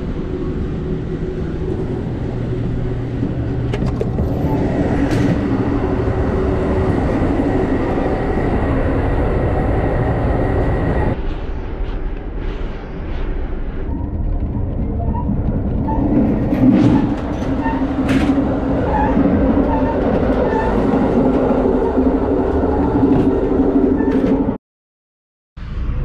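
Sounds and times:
train rumbling on rails: 0.0s - 24.6s.

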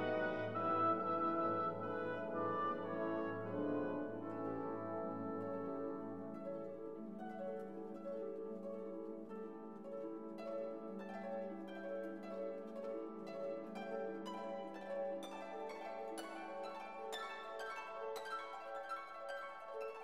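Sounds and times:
classical-style background music: 0.0s - 20.0s.

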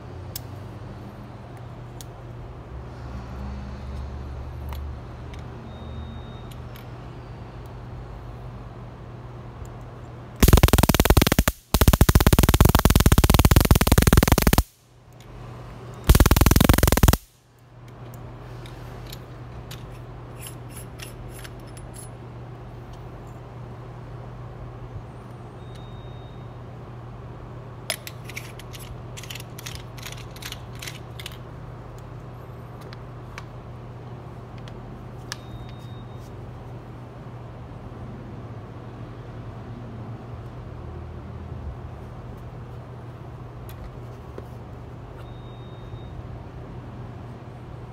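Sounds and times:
electric arc crackling: 10.4s - 14.8s, 16.1s - 17.4s.

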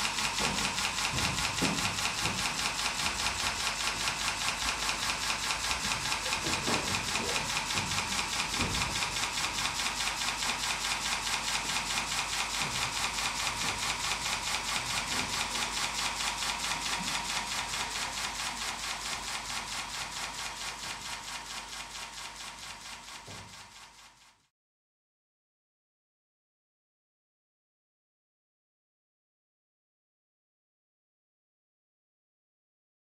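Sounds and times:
fast clicking pulse: 0.0s - 24.0s.

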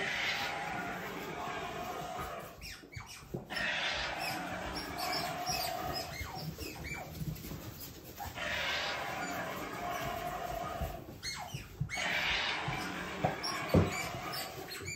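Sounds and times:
otters chirping: 0.0s - 7.2s
otter falling calls: 11.9s - 14.7s.

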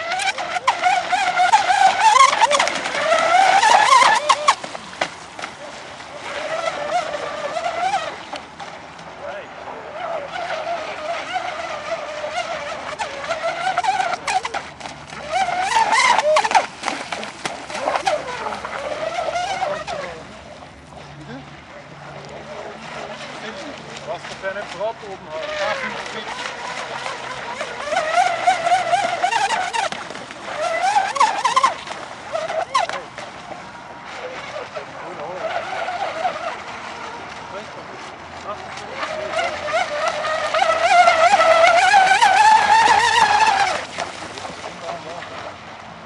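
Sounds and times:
electric motor whining: 0.0s - 4.8s, 6.1s - 8.4s, 9.9s - 20.4s, 25.3s - 33.1s, 38.6s - 44.1s
hull and spray noise: 0.0s - 46.0s.

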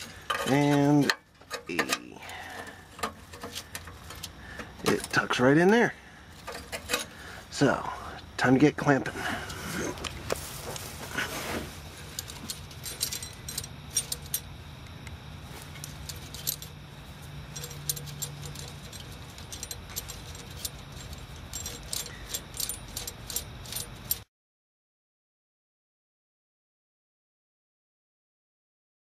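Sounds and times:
metal bolt and nut clicking: 0.0s - 5.8s, 6.4s - 7.2s, 12.0s - 24.2s.

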